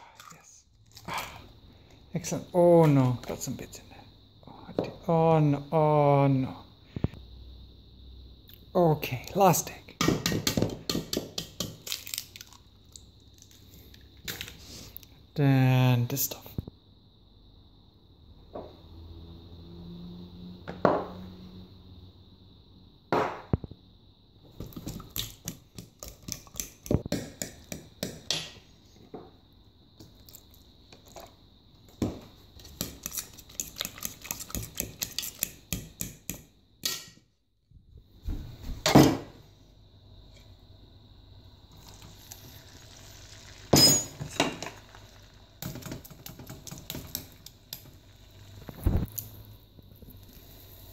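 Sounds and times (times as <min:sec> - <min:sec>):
fork whisking batter in plastic bowl: 0:32.6 - 0:35.7.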